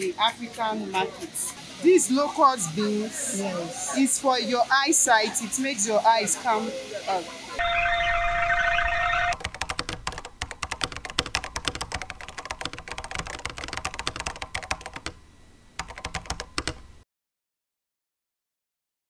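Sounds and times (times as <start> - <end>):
typing on computer keyboard: 9.4 - 15.2, 15.8 - 16.9.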